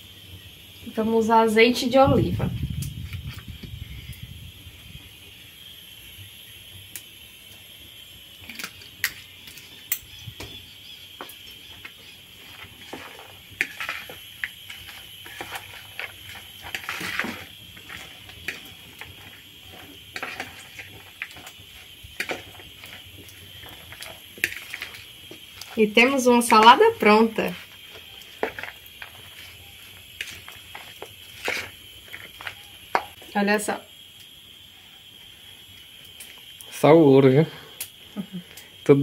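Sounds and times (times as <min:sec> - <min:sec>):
utensils scraping a dish: 0:12.4 - 0:23.0.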